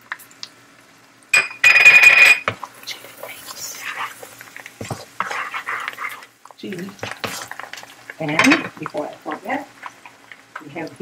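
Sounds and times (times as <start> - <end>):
wooden spoon scraping a pan: 3.3 - 9.0.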